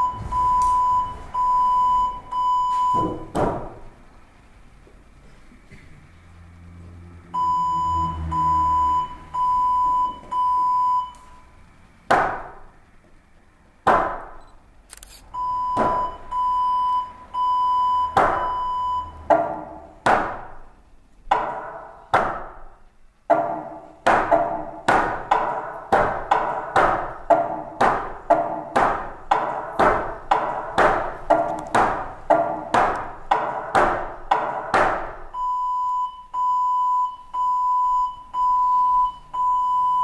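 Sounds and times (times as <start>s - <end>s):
electronic beeps: 0.0s - 3.2s, 7.4s - 11.5s, 14.4s - 19.2s
sharp percussive knocks: 13.8s - 14.4s, 18.1s - 22.7s, 23.3s - 35.2s.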